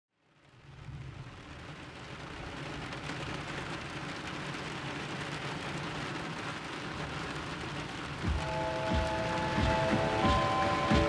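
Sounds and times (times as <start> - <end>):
steady rain: 0.1 - 11.0.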